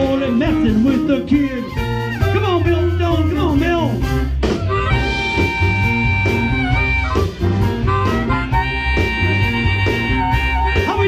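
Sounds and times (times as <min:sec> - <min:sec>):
amplified harmonica solo: 0:00.0 - 0:03.0, 0:04.0 - 0:11.0
bass guitar: 0:00.0 - 0:11.0
electric guitar: 0:03.5 - 0:11.0.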